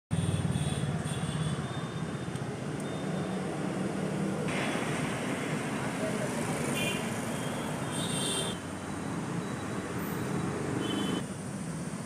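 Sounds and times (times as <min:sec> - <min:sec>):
hiss of traffic noise: 0:04.0 - 0:12.0.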